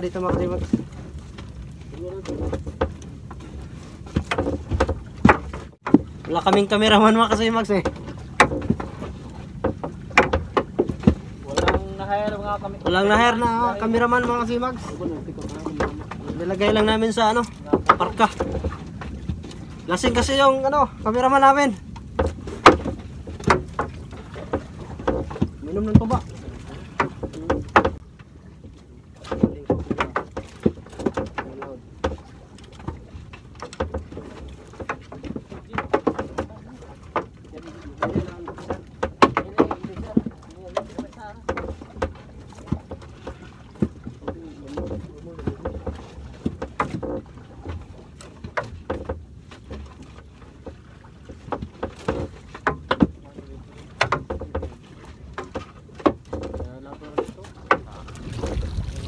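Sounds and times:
fishing net hauled over boat side: 0.0 - 59.0.

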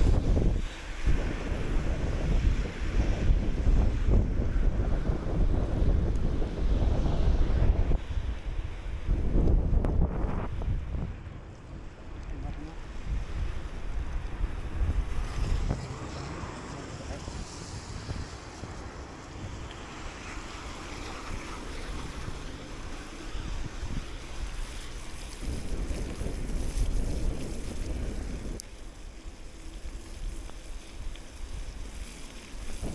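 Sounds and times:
tyres hissing on wet road: 0.0 - 9.4, 10.1 - 32.9
wind buffeting microphone: 0.0 - 32.9.

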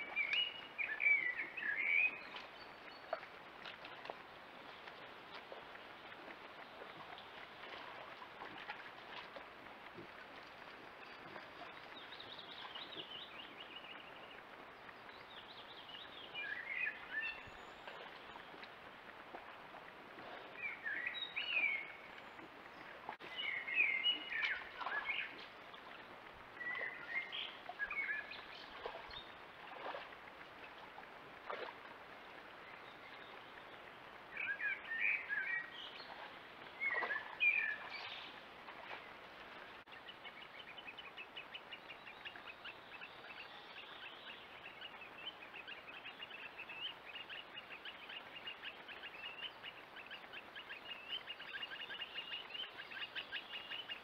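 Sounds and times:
faint running water hiss: 0.0 - 54.0
small birds chirping: 20.4 - 26.0, 32.6 - 54.0.

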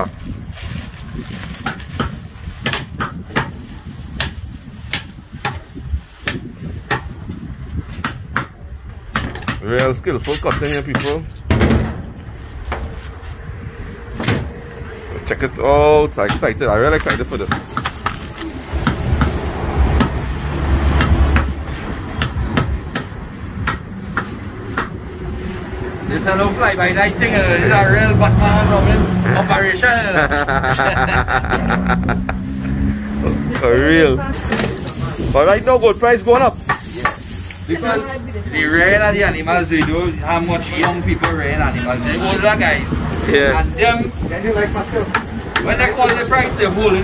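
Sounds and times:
cleaver chopping meat on wood: 6.2 - 7.1, 7.9 - 11.2, 21.0 - 21.6, 22.2 - 25.0.

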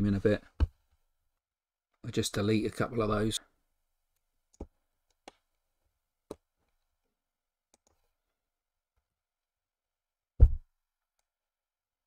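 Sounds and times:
computer mouse clicks: 7.7 - 8.0
low thud: 10.4 - 10.6.

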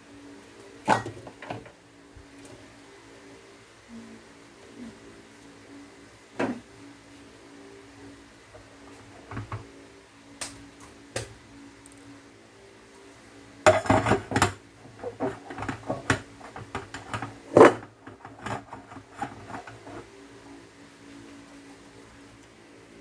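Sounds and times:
metal pan and strainer clattering: 13.7 - 14.6.

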